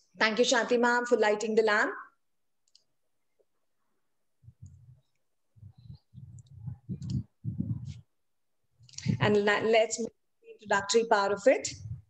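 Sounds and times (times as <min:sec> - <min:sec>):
faint low thuds and rumbles: 0:05.6 - 0:08.1.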